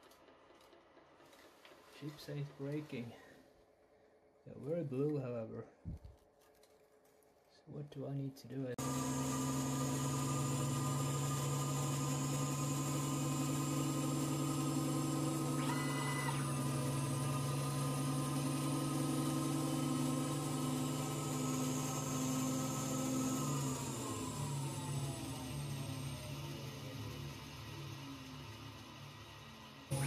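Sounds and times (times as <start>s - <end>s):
lathe cutting steel: 8.8s - 30.0s.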